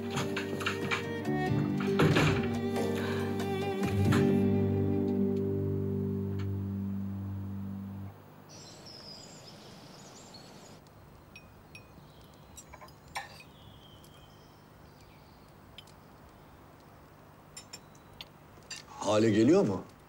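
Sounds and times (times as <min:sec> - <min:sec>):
background music: 0:00.0 - 0:08.1
cutlery clinking on plates: 0:12.6 - 0:13.5, 0:17.6 - 0:18.0.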